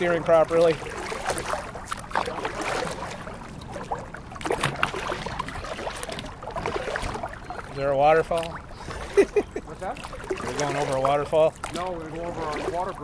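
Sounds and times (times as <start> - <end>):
paddle splashing: 0.0 - 13.0
water swishing around kayak: 0.0 - 13.0.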